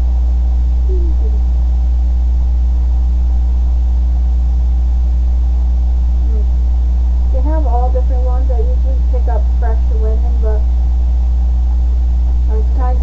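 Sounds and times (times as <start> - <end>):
faint steady tone: 0.0 - 13.0
low electrical hum: 0.0 - 13.0.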